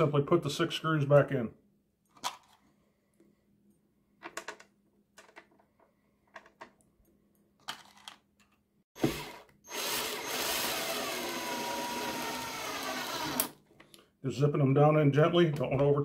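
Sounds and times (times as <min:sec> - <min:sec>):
cordless drill driving screw: 0:09.0 - 0:13.6.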